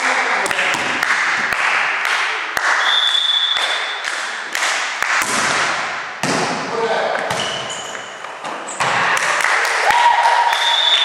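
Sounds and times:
volleyballs smacking: 0.4 - 2.8, 3.5 - 9.4
short high whistle: 2.8 - 4.0, 10.5 - 11.0.

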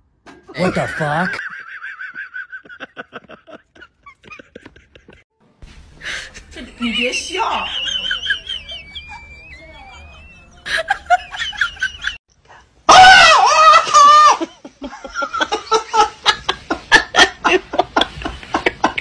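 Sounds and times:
man laughing: 0.5 - 5.2, 7.8 - 12.2.

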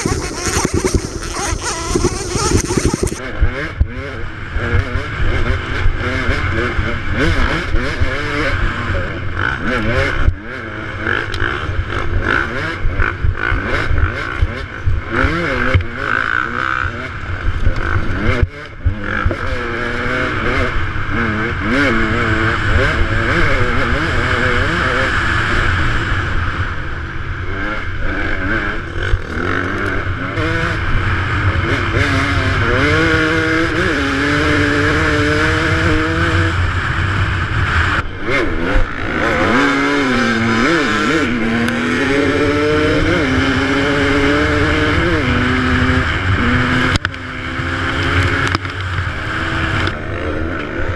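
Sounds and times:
dirt bike engine revving: 0.0 - 50.9.

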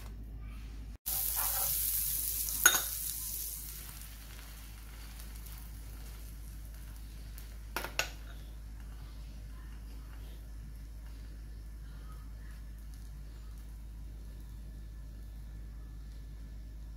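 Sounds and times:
butter sizzling in hot pan: 1.0 - 14.6.

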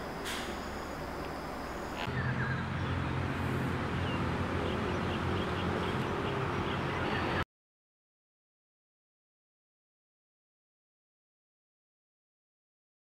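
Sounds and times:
room hiss with high whine: 0.0 - 2.1.

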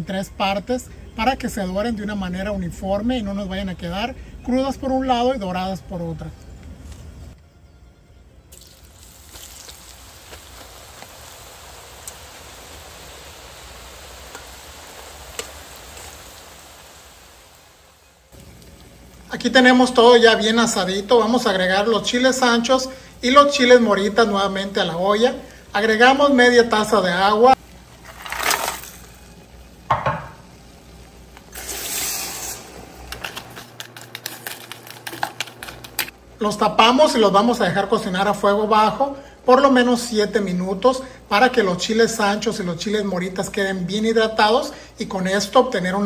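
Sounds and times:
sharp crackle in hot pot: 8.5 - 21.0, 27.6 - 36.2
oil sizzling with pops: 8.5 - 22.7, 23.5 - 36.2.

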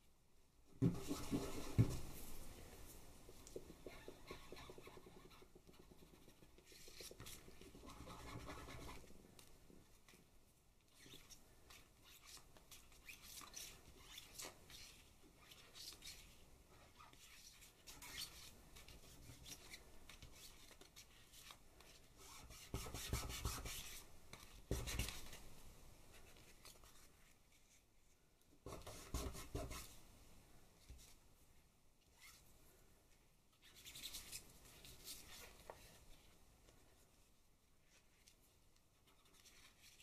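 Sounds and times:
stick scratching over paper: 3.7 - 9.1.

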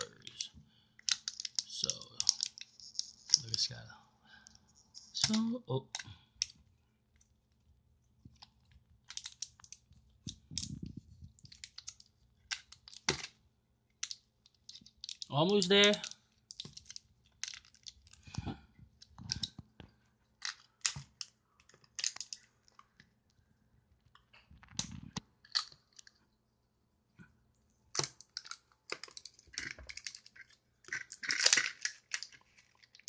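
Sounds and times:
plastic egg clicking: 0.2 - 3.6, 8.3 - 15.3, 15.9 - 18.2
plastic wrapping crinkling: 8.2 - 13.3, 14.0 - 23.0, 27.9 - 33.0.

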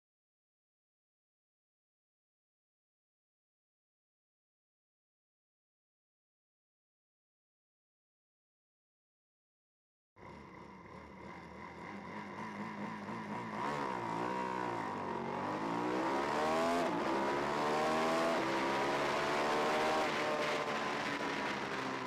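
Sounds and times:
motorcycle engine accelerating: 10.2 - 22.0.

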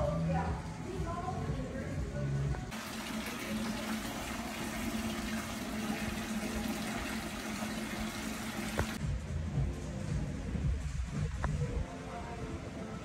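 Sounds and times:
fountain water splashing: 2.7 - 9.0.

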